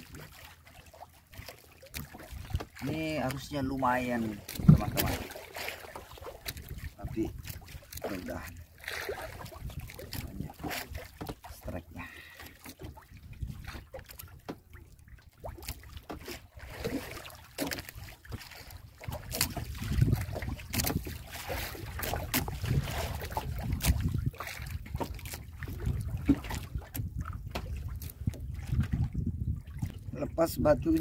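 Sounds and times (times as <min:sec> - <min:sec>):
waves lapping against boat hull: 0:00.0 - 0:31.0
wind buffeting microphone: 0:02.2 - 0:05.4, 0:06.0 - 0:11.8, 0:12.8 - 0:14.5, 0:17.8 - 0:31.0.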